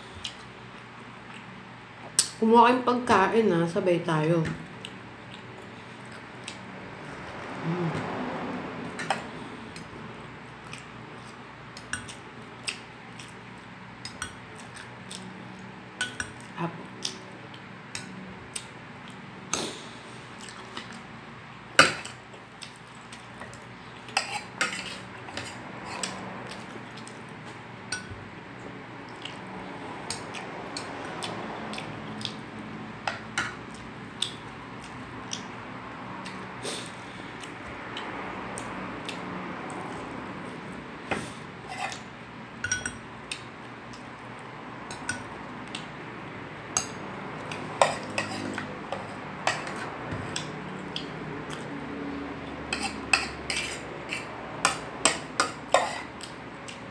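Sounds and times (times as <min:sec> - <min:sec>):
metal spoon clinking on plate: 0:42.6 - 0:43.0.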